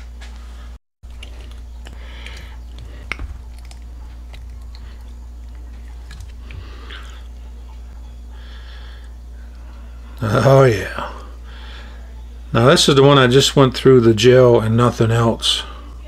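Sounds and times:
steady low hum: 0:00.0 - 0:16.0
knife squishing through gelatin: 0:01.1 - 0:07.2.

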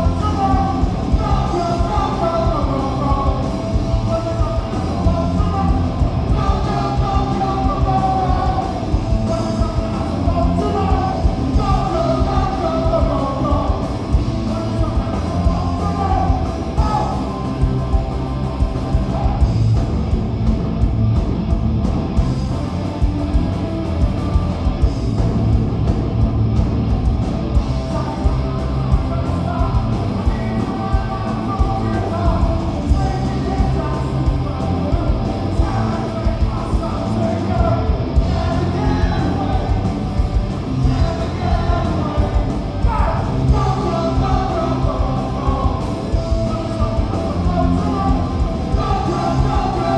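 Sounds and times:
person singing: 0:00.0 - 0:17.6, 0:27.8 - 0:49.9
punk rock band playing: 0:00.0 - 0:49.9.

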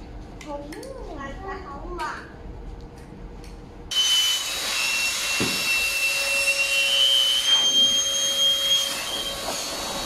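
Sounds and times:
electric air pump running: 0:03.9 - 0:10.0.

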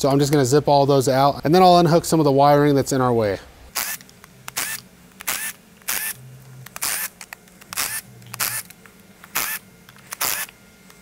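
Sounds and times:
cordless power driver bursts: 0:03.7 - 0:06.2, 0:06.8 - 0:07.2, 0:07.8 - 0:08.7, 0:09.3 - 0:10.6.

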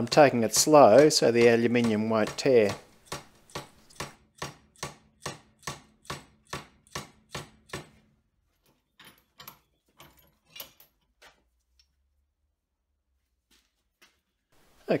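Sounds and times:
hammer striking metal bar: 0:00.0 - 0:08.0.

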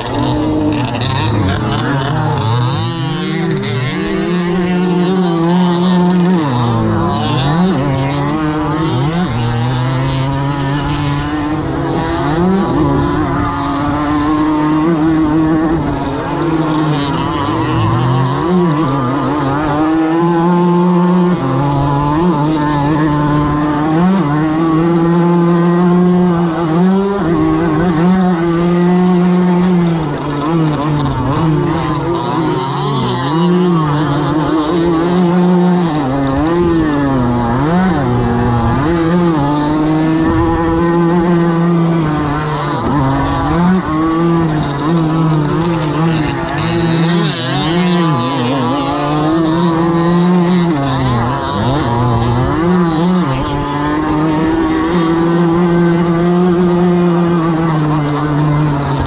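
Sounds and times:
moped two-stroke engine revving: 0:00.0 - 0:59.0
wind rumbling on microphone: 0:40.1 - 0:43.5.

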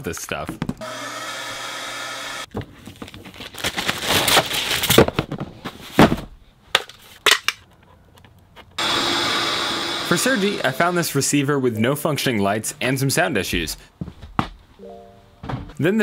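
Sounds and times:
shop vacuum whine: 0:00.8 - 0:02.5, 0:08.8 - 0:11.2.

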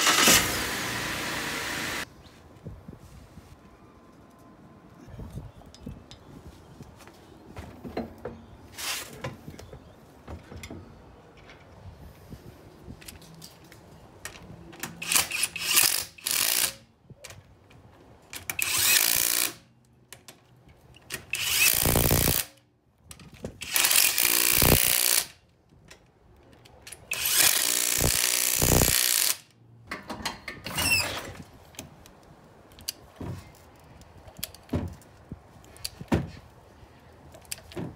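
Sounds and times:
cordless drill running lug nuts: 0:00.0 - 0:02.0, 0:18.6 - 0:19.6, 0:23.6 - 0:25.3, 0:27.1 - 0:29.4.

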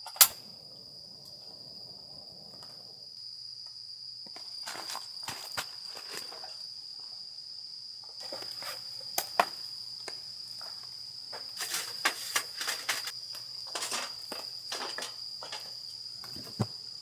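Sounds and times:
crickets chirring: 0:00.0 - 0:17.0
firewood rustling: 0:04.4 - 0:06.6, 0:11.3 - 0:16.6.

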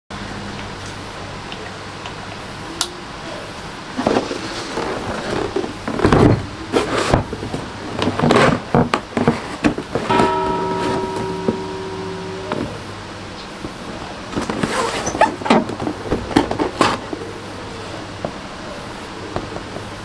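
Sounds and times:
steady held tone: 0:10.1 - 0:13.5.

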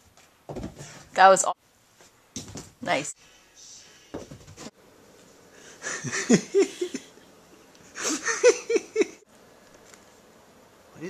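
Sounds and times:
person laughing: 0:05.8 - 0:07.2, 0:07.9 - 0:09.2.

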